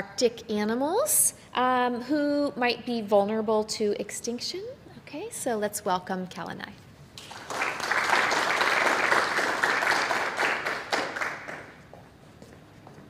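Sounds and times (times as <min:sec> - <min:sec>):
audience applauding: 0:07.2 - 0:11.9.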